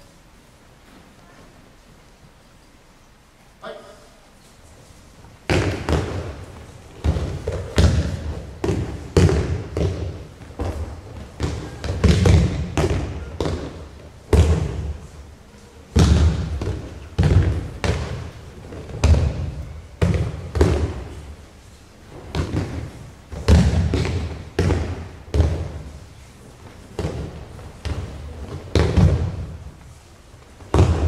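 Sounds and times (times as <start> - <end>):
bodies thudding on mats: 30.6 - 31.0.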